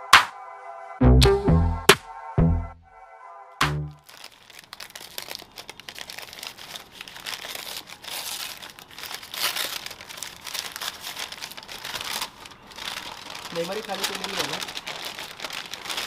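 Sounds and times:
paper crinkling and rustling: 4.0 - 16.0
paper tearing: 4.0 - 16.0.

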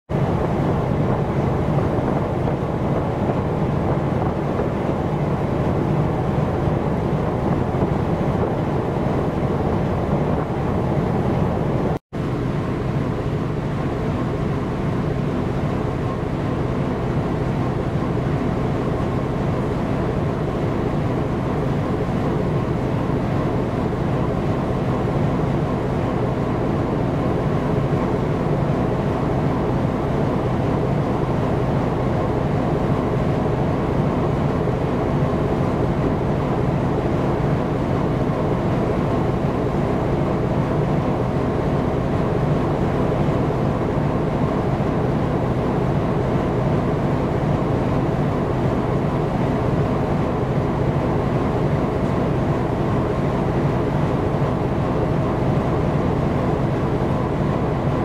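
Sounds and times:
wind on microphone: 0.1 - 12.0
cargo ship drone: 0.1 - 58.0.

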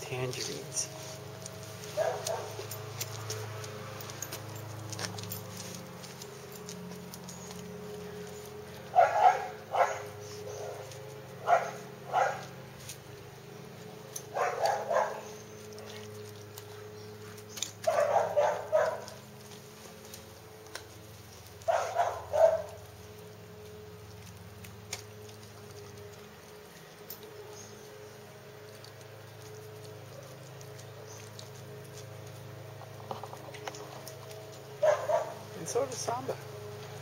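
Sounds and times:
dog barking: 2.0 - 2.6, 8.9 - 12.5, 14.3 - 15.4, 17.8 - 19.2, 21.7 - 22.8, 34.8 - 35.4.

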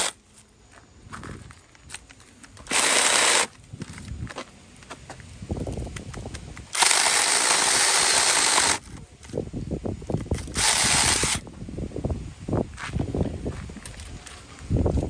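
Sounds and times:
mini chainsaw cutting log: 2.6 - 3.5, 6.7 - 8.9, 10.3 - 11.4.

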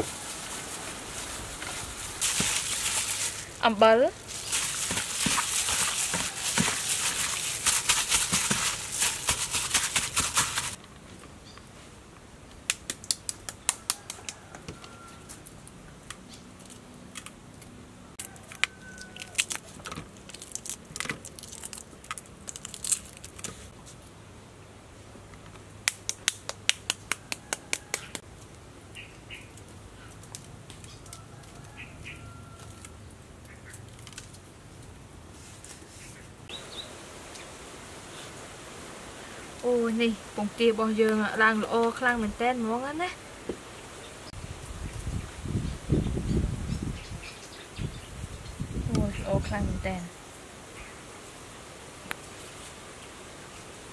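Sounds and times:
wet squishing of meat kneaded: 2.2 - 3.6, 4.2 - 10.8
egg shells cracking: 18.4 - 23.5.

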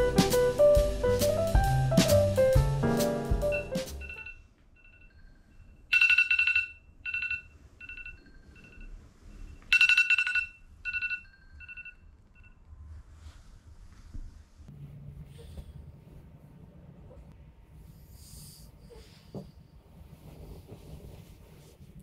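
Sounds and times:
smartphone alarm tone ringing: 3.4 - 12.6.

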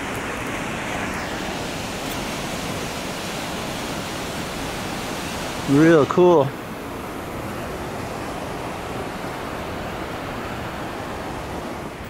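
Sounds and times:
waterfalls rushing through gorge: 0.0 - 12.0.

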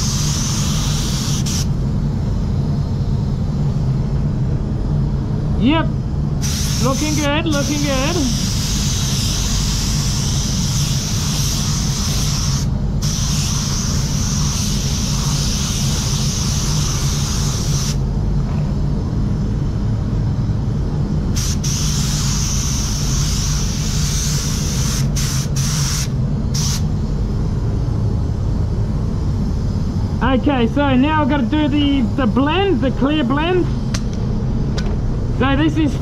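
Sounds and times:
spray gun air hiss: 0.0 - 1.8, 6.4 - 18.0, 21.3 - 27.0
steady low hum: 0.0 - 36.0.

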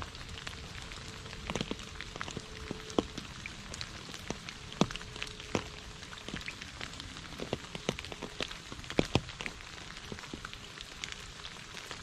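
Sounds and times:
rain falling into a puddle: 0.0 - 12.0.

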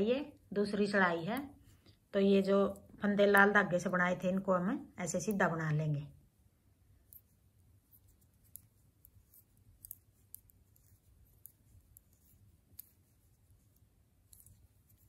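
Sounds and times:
knitting needles clicking: 2.6 - 4.4, 7.0 - 15.0.

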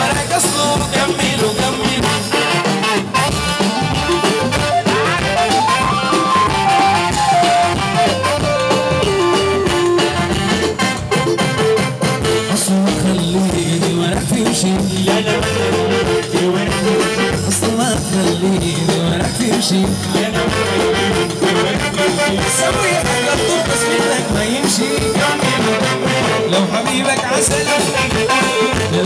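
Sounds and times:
man singing into a microphone: 0.0 - 3.1, 12.4 - 29.0
band accompaniment: 0.0 - 29.0.

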